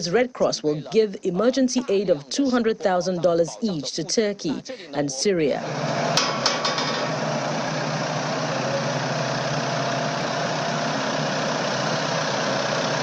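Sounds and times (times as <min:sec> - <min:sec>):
engine hum: 0:05.6 - 0:13.0
sharp clanks: 0:06.1 - 0:07.2.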